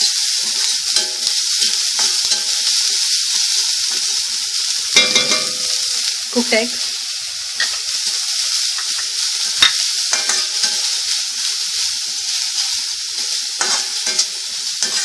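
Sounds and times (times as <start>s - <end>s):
vegetables sizzling in hot oil: 0.0s - 15.0s
spatula clinking against pan: 5.0s - 5.7s, 8.8s - 10.8s
spatula stirring and scraping: 13.2s - 15.0s.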